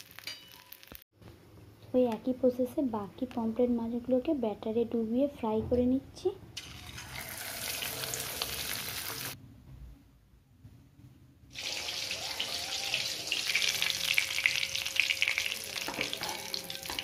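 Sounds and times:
fish deep-frying in hot oil: 0.0 - 1.0, 6.6 - 9.4, 11.5 - 17.0.

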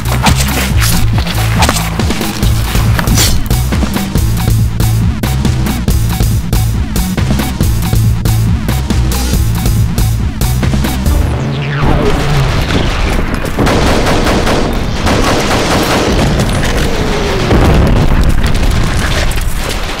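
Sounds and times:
falling tones: 10.6 - 13.6
rapid gunfire: 12.2 - 20.0.

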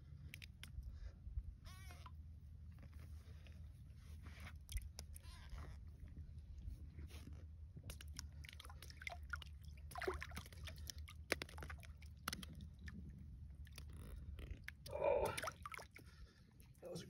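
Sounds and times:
low steady rumble: 0.0 - 17.0
water sloshing: 7.9 - 16.8.

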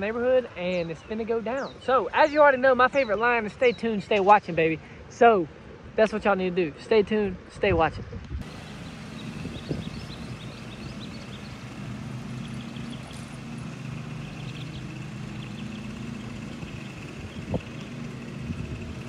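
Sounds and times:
birds chirping: 0.0 - 4.8, 8.4 - 19.0
engine idling hum: 8.4 - 19.0.

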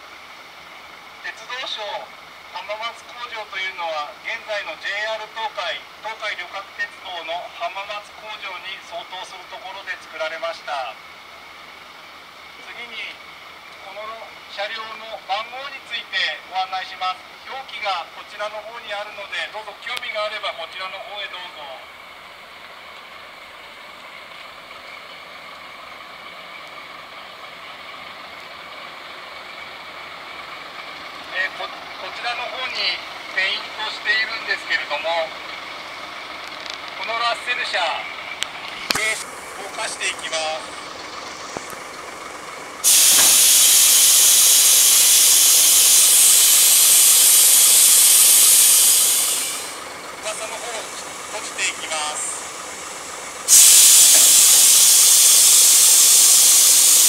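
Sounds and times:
diesel locomotive idling: 0.0 - 57.0
compressed air hissing: 42.8 - 49.9, 52.4 - 57.0.

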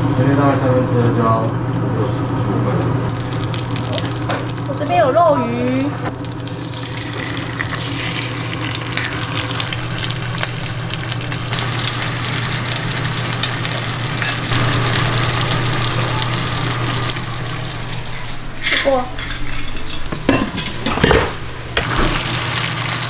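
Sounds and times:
soup bubbling and sizzling: 3.1 - 4.9, 5.7 - 18.6, 21.8 - 23.0.

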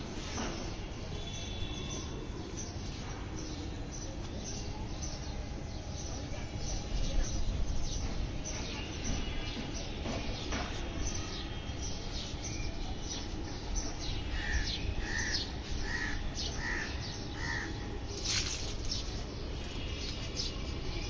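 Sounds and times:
birds chirping: 0.3 - 21.0
short evenly spaced bird calls: 0.5 - 21.0.

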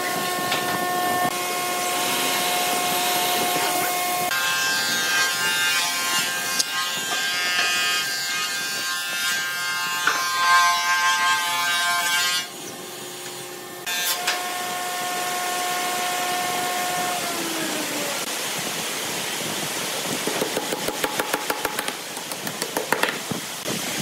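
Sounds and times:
steady motor hum: 0.0 - 5.2, 12.5 - 18.4.

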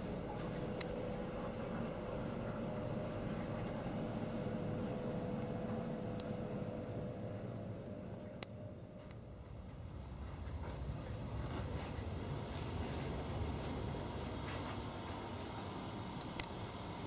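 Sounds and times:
train compartment hum: 0.0 - 17.0.

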